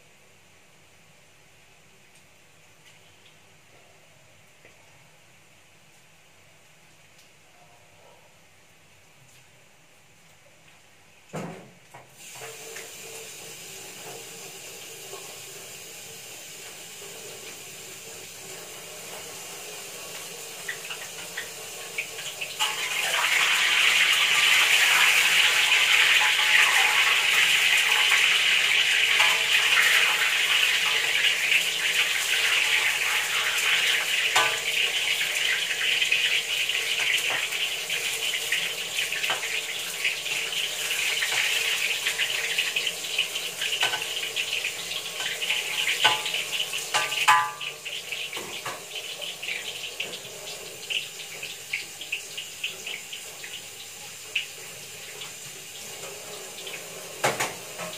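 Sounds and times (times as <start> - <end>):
tap running into a sink: 11.4 - 14.4, 57.2 - 57.9
food sizzling in oil: 12.2 - 57.9.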